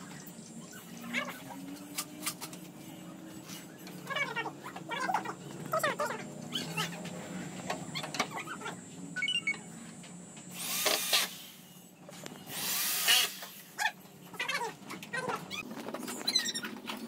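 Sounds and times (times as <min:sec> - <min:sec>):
power drill running: 0:10.5 - 0:11.5, 0:12.5 - 0:13.6.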